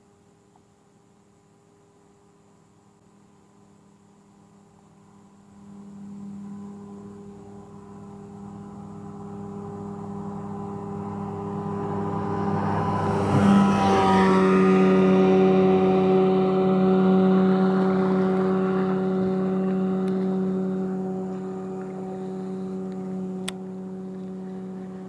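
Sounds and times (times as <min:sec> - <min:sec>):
speedboat engine passing: 0:05.0 - 0:25.0.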